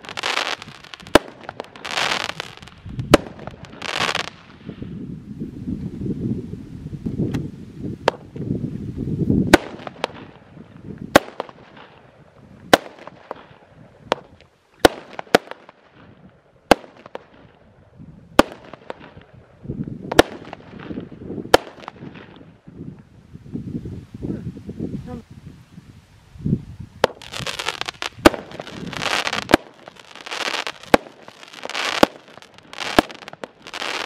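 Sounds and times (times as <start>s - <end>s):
firework bangs: 0.0s - 4.7s, 9.4s - 12.0s, 12.7s - 17.5s, 20.1s - 22.5s, 27.0s - 34.0s.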